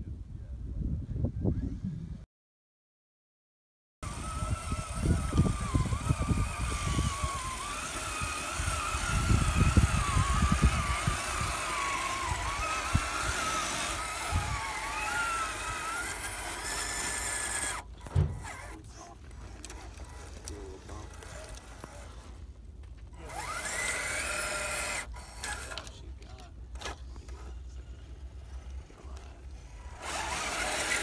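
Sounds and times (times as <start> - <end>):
electric motor whining: 4.0 - 31.0
tires crunching on dirt and rock: 4.7 - 24.2.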